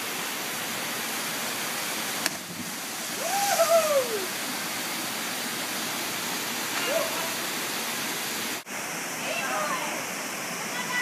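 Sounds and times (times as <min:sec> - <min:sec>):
waterfall rushing into pool: 0:00.0 - 0:11.0
person whooping yell: 0:03.2 - 0:04.3.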